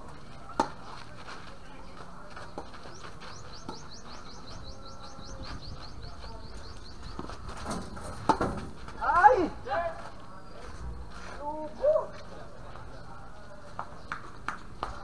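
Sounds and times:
bird chirping: 1.9s - 7.5s
racket hitting tennis ball: 8.1s - 8.7s.

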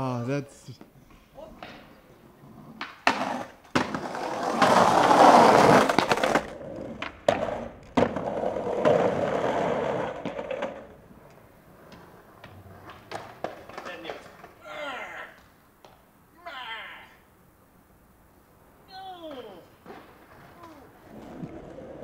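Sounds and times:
skateboard truck grinding ledge: 2.5s - 14.6s
skateboard clacking on stone ledge: 2.7s - 14.7s, 19.2s - 22.0s.

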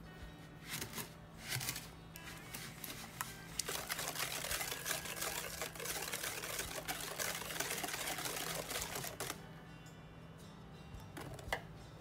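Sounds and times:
whisk clattering in glass bowl: 3.6s - 9.4s.

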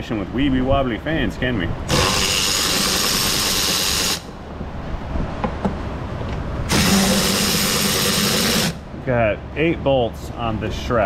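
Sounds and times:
cordless power driver spinning: 1.9s - 4.3s, 6.7s - 8.8s.

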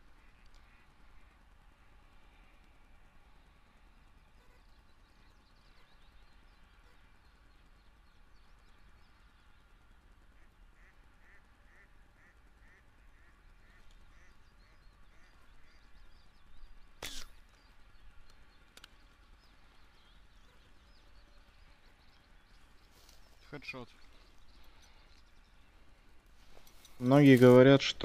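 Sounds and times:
bird calling: 4.0s - 28.0s.

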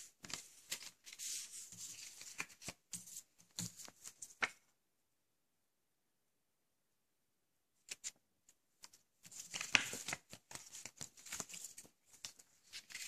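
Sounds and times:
paper leaflets rustling: 0.0s - 4.6s, 8.8s - 13.0s.

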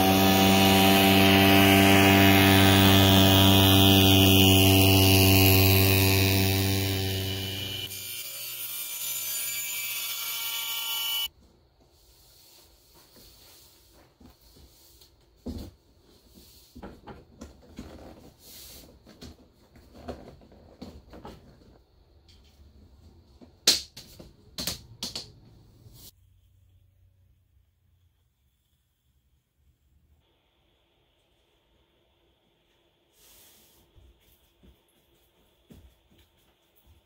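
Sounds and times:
table saw whining: 0.0s - 11.3s.

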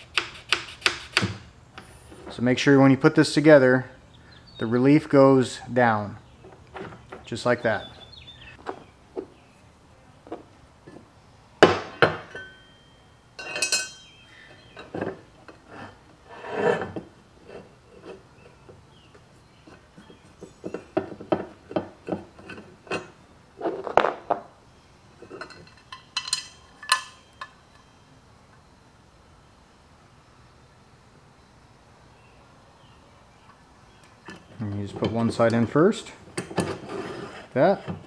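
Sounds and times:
small metal hardware clicking and clinking: 13.4s - 14.2s, 25.2s - 28.0s.

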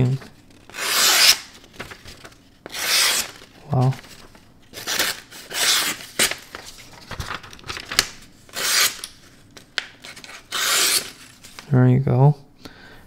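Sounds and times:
knife slicing paper: 0.6s - 2.0s, 2.7s - 4.0s, 8.5s - 9.1s, 10.0s - 11.4s.

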